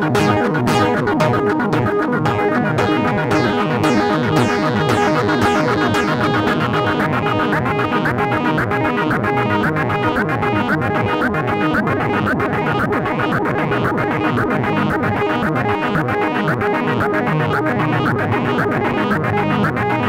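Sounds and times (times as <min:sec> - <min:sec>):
synthesizer sequenced pattern: 0:00.0 - 0:07.1.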